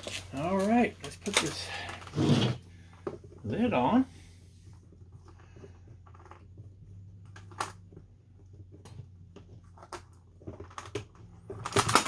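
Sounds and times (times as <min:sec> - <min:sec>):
small parts clicking and knocking: 0:04.9 - 0:12.0.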